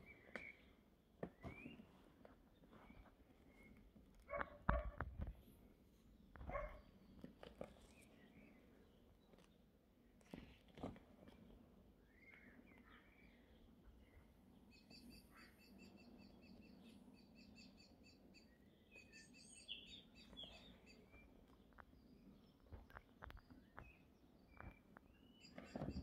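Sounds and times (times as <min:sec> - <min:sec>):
small birds chirping: 0:00.0 - 0:04.6, 0:05.2 - 0:26.0
bird trill: 0:14.7 - 0:21.3, 0:23.4 - 0:26.0.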